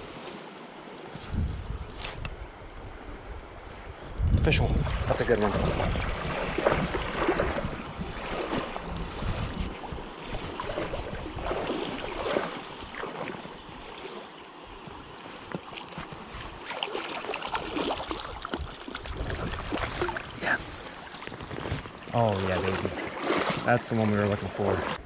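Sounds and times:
wind on microphone: 1.1 - 12.6, 18.3 - 22.1
flowing creek water: 4.5 - 25.0.

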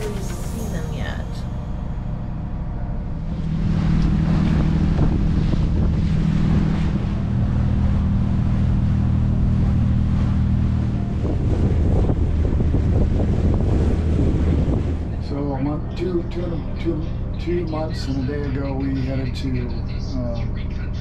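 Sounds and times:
boat diesel engine droning: 0.0 - 21.0
water rushing along hull: 0.0 - 21.0
wind buffeting microphone: 3.2 - 16.0.

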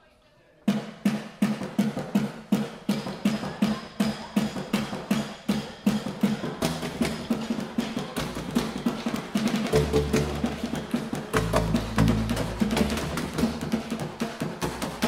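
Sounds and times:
low bass sound: 9.7 - 13.7
sticks hitting junk drums: 9.7 - 15.0.

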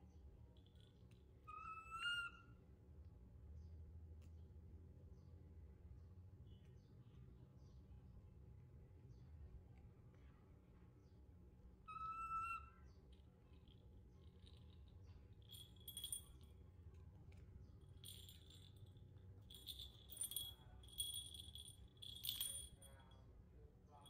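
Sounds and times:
bell in toy ball jingling: 13.6 - 16.7, 17.9 - 23.2.

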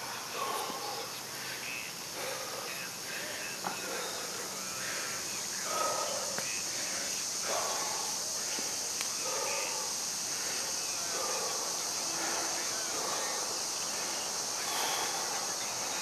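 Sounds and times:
steady high-pitched hiss: 0.0 - 16.0.

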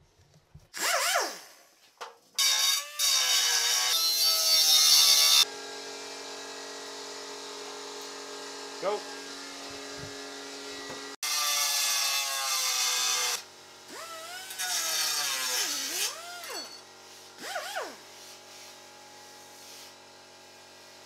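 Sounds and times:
pneumatic cut-off tool cutting metal: 0.7 - 1.6, 2.4 - 5.5, 10.6 - 18.5.

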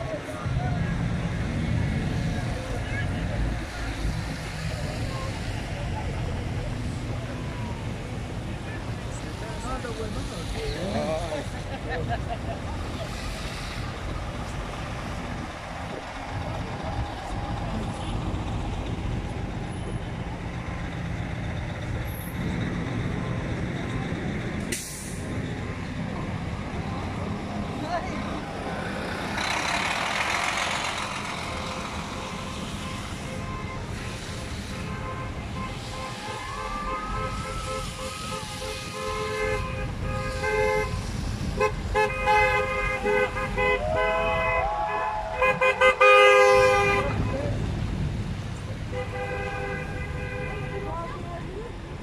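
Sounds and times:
diesel engines idling: 0.0 - 52.0
low traffic rumble: 0.0 - 52.0
vehicle horns honking: 31.5 - 47.5, 48.9 - 51.2.

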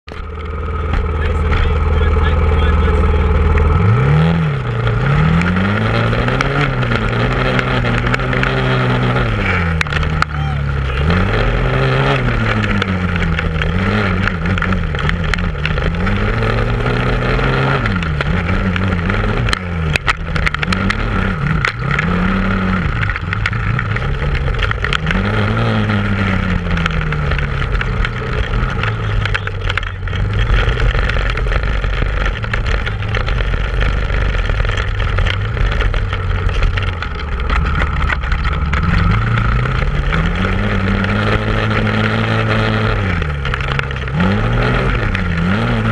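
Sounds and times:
atv engine revving: 0.0 - 45.9.

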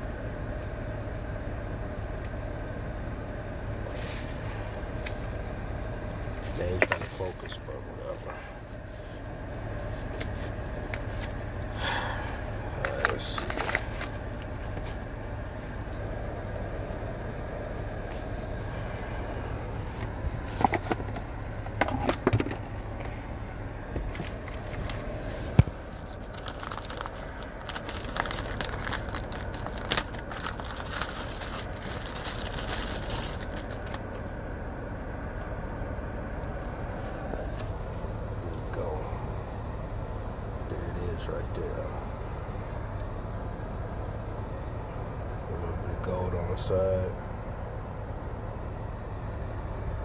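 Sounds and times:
steady low hum: 0.0 - 50.0
plastic bag crinkling: 13.1 - 15.0, 24.1 - 25.1, 25.7 - 34.3.

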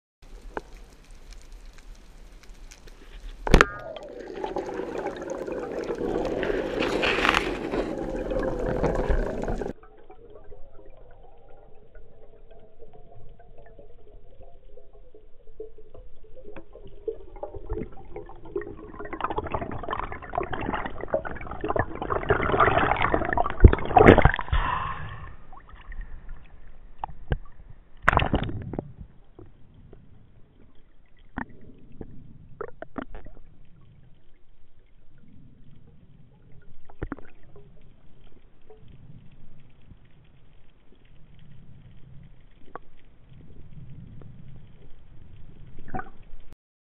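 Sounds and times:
underwater rushing water: 0.2 - 28.7.

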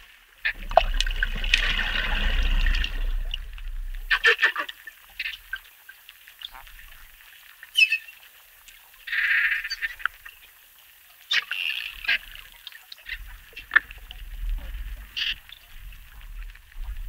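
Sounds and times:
low rumble: 0.5 - 4.4
dolphin clicks and squawks: 4.1 - 5.6, 7.7 - 8.3, 11.3 - 12.4.

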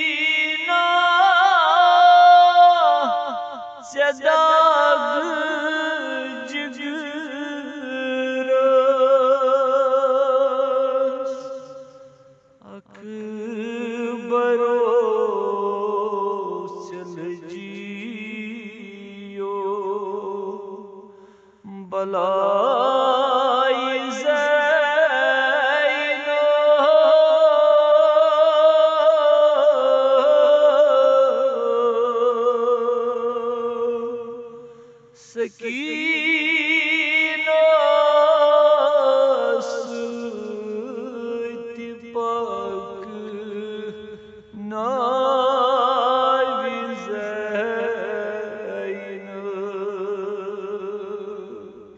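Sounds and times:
man chanting a lament: 0.0 - 21.1, 21.7 - 51.9.

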